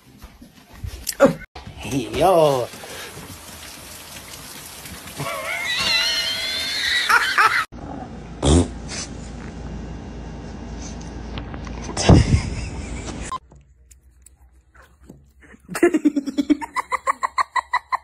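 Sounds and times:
fake fart noises: 0:08.4 - 0:09.0.

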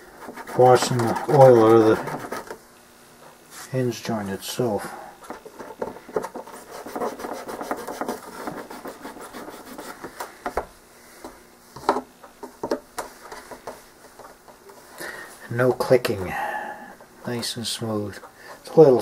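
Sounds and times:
scratchy scraping: 0:00.1 - 0:02.6, 0:05.5 - 0:10.1.

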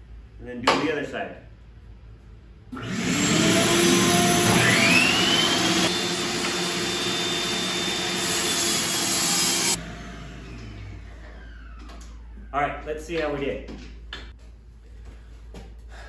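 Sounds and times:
table saw cutting wood: 0:02.8 - 0:11.7.

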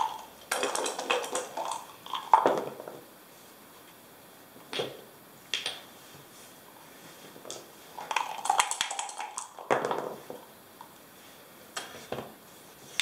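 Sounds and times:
dice rattling in a cup: 0:00.0 - 0:02.8, 0:08.0 - 0:10.2
game pieces clacking on board: 0:00.0 - 0:02.8, 0:07.5 - 0:10.2.

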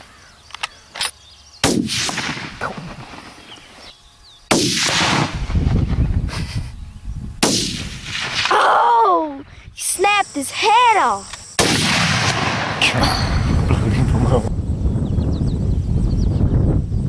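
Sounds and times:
rifle shots with echo: 0:01.6 - 0:03.3, 0:04.5 - 0:05.4, 0:07.4 - 0:08.5, 0:11.6 - 0:13.0.

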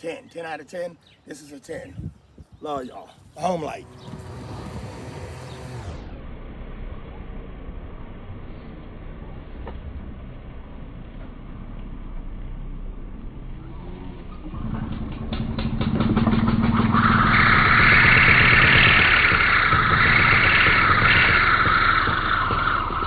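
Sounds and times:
string trimmer whining: 0:03.4 - 0:06.1, 0:14.5 - 0:23.0.

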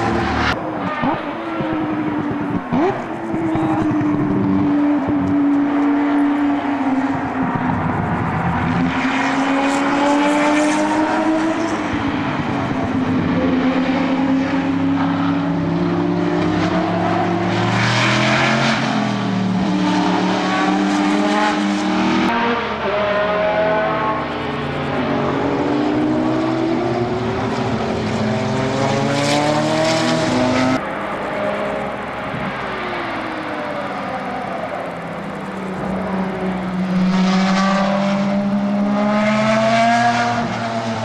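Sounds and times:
race cars passing at speed: 0:00.0 - 0:41.0.

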